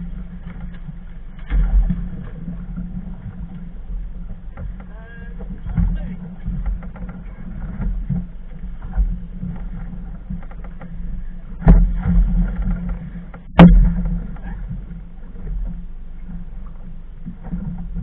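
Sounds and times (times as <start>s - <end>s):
motorboat engine drone: 0.0s - 18.0s
loud knocks: 11.6s - 14.6s.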